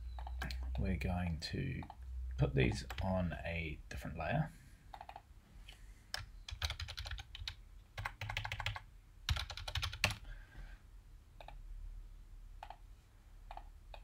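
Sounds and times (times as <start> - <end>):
computer keyboard typing: 0.1 - 0.8, 2.7 - 3.1, 4.9 - 5.3, 6.1 - 10.3, 12.6 - 12.8, 13.5 - 14.0
isolated clicks: 0.1 - 0.8, 11.4 - 11.6.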